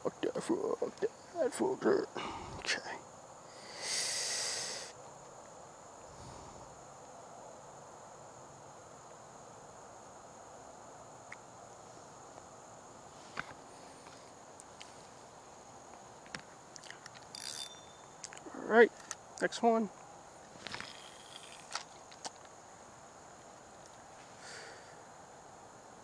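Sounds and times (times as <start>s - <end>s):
crickets singing: 0.0s - 26.0s
faint hush: 2.1s - 5.0s.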